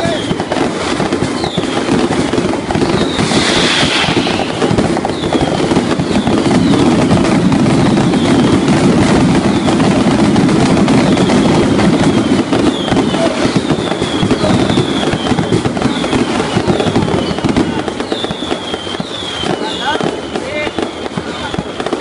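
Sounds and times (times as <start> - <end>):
fireworks crackling and popping: 0.0 - 22.0
falling whistles: 1.4 - 1.8, 2.8 - 8.6, 11.0 - 21.8.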